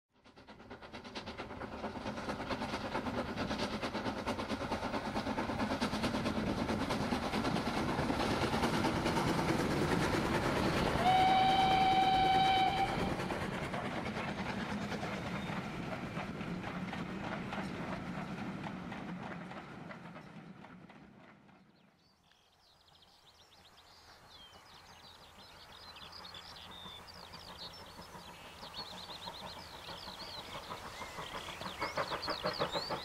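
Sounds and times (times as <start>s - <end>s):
steam train running: 0.2s - 22.0s, 23.4s - 33.0s
train whistle blast: 10.9s - 13.2s.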